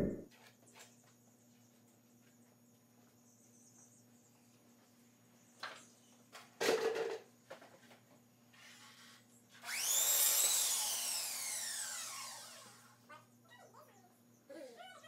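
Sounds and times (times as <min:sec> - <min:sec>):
miter saw motor whine: 0:09.6 - 0:12.9.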